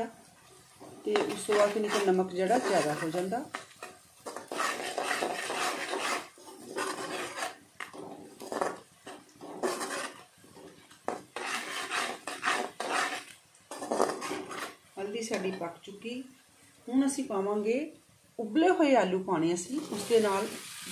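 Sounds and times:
onions frying in oil: 0:00.0 - 0:20.9
metal spatula scraping a pan: 0:00.7 - 0:15.7.

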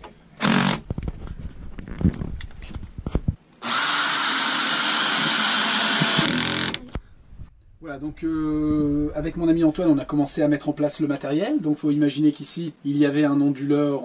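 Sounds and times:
cordless drill driving screw: 0:03.6 - 0:06.9.

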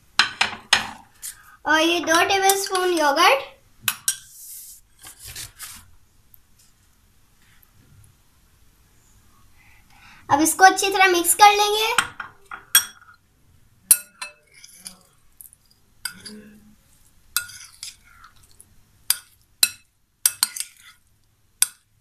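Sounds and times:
food mixing sounds: 0:01.1 - 0:03.2, 0:13.8 - 0:22.0
metal spoon clinking on glass bowl: 0:13.9 - 0:15.0, 0:16.0 - 0:16.4, 0:19.1 - 0:20.8.

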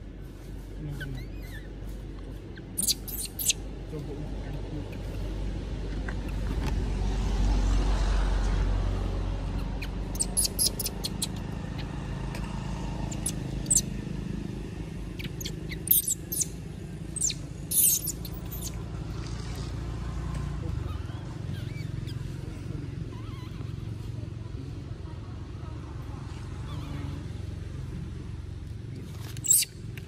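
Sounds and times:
low outdoor rumble: 0:00.0 - 0:30.0
high-pitched chirps: 0:02.8 - 0:03.6, 0:10.2 - 0:11.4, 0:13.1 - 0:13.9, 0:15.2 - 0:16.5, 0:17.2 - 0:18.8.

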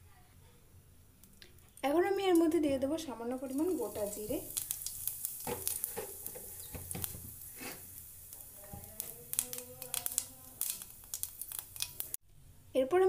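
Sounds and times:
small sharp crackles and pops: 0:01.2 - 0:02.6, 0:03.4 - 0:12.2
seeds sizzling in hot oil: 0:01.8 - 0:12.2
wooden spatula stirring: 0:03.5 - 0:12.1.

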